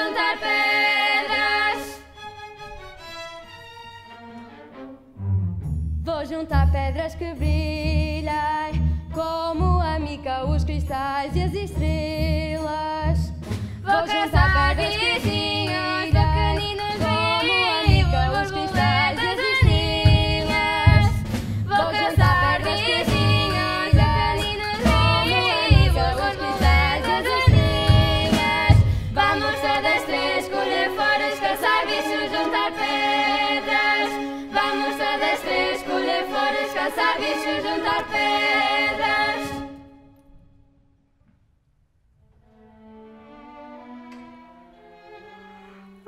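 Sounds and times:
young voices singing: 0.0 - 2.0, 13.9 - 39.7
orchestra playing: 2.2 - 6.1, 42.4 - 46.0.

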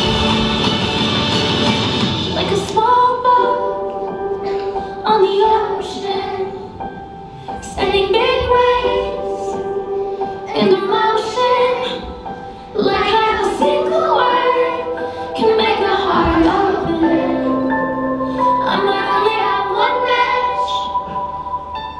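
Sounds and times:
children singing: 0.0 - 6.8, 7.7 - 21.6
musical accompaniment: 0.0 - 21.9.

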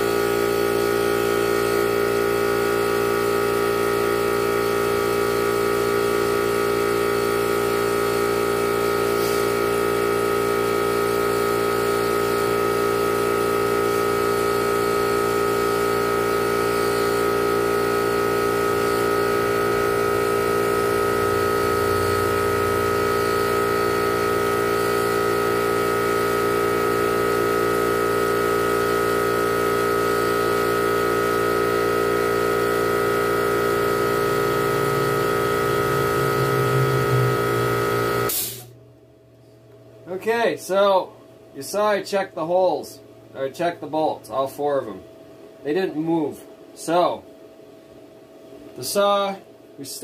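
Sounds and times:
chainsaw engine running: 0.0 - 38.3.

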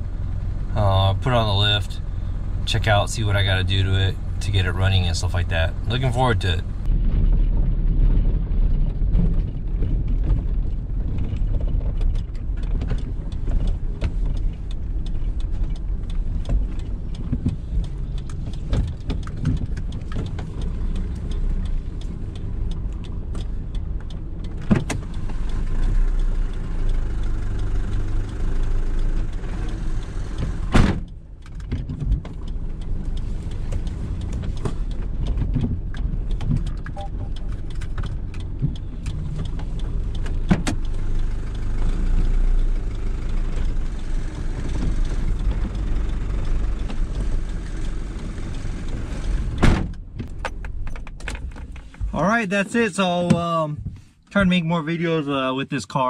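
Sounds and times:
engine and road noise rumble: 0.0 - 56.0
small clicks and rattles: 8.8 - 52.1.

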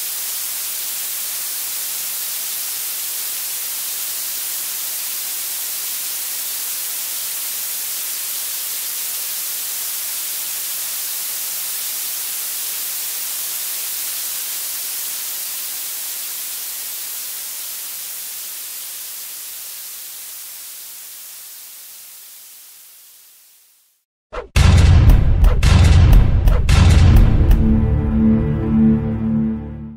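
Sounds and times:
steady high hiss: 0.0 - 24.1.

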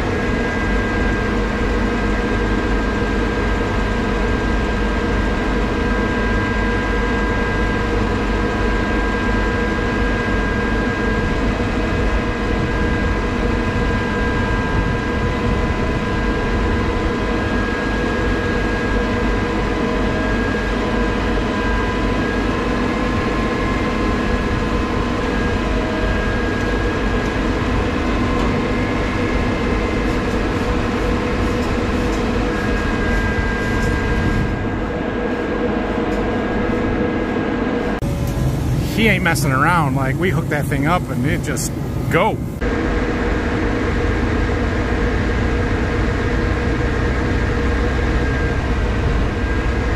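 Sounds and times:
high whine: 37.7 - 49.7
diesel engine running: 38.0 - 42.6.

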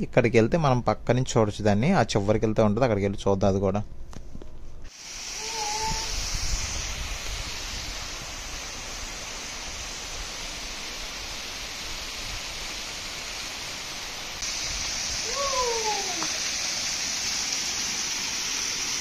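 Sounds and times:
waterfall rushing: 4.9 - 19.0.

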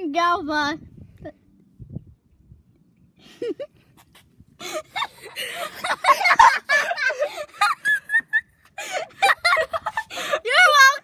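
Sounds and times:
boys talking and laughing: 3.2 - 11.0.

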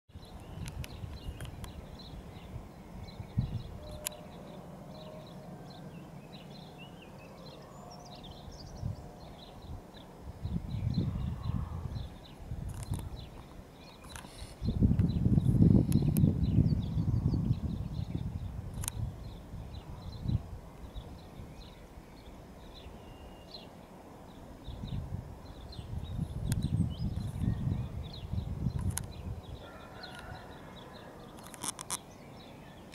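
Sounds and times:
wind rumbling on microphone: 0.1 - 23.6, 24.3 - 32.9
small birds chirping: 0.1 - 32.9
sharp clicks: 12.7 - 13.1, 18.7 - 19.0, 31.4 - 32.0.

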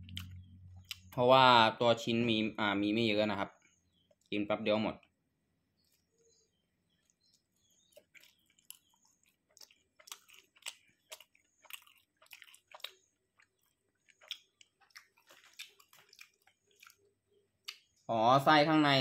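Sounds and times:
person chewing food: 0.0 - 1.2, 5.8 - 18.0.

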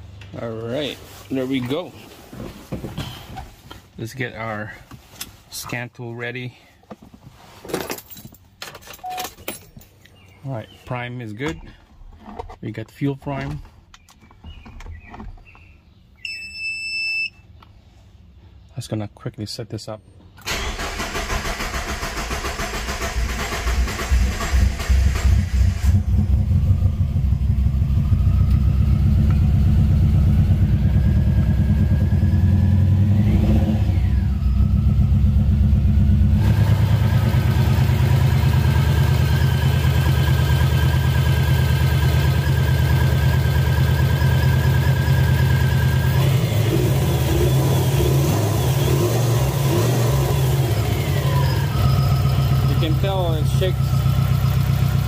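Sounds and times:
turbocharged engine idling: 23.0 - 33.4, 34.1 - 55.0.

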